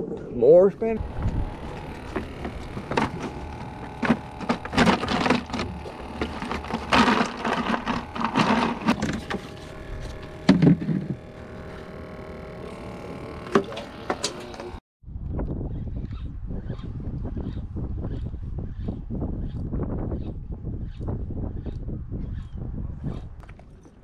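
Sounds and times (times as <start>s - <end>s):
plastic buckets knocking and rattling: 1.6s - 11.2s.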